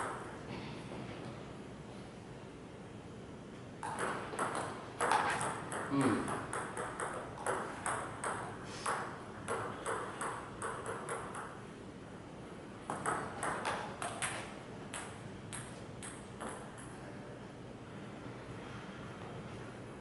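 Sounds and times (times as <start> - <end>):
table tennis ball clicking: 3.8 - 11.6, 12.8 - 16.9.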